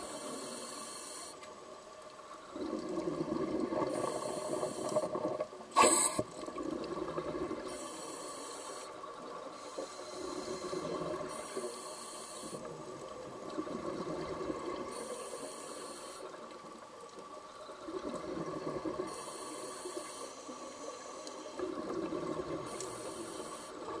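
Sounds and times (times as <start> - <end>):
regulator hiss on inhale: 0.0 - 1.7, 3.7 - 6.5, 7.5 - 13.1, 14.7 - 16.6, 18.9 - 24.0
exhaled bubbles underwater: 2.4 - 7.8, 12.6 - 15.0, 17.6 - 19.2, 21.6 - 24.0.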